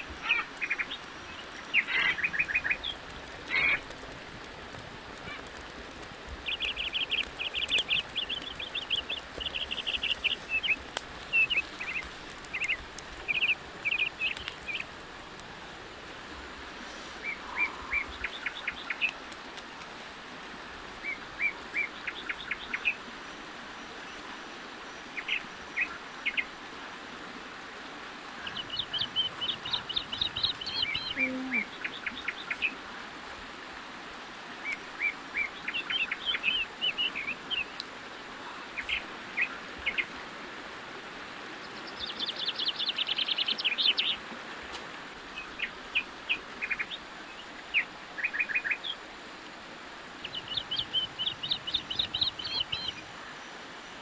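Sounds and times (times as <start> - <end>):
small birds chirping: 0.0 - 4.0, 5.2 - 15.0, 17.2 - 19.3, 28.4 - 32.8, 41.6 - 44.2, 45.3 - 49.0, 50.2 - 53.5
background hiss: 0.0 - 54.0.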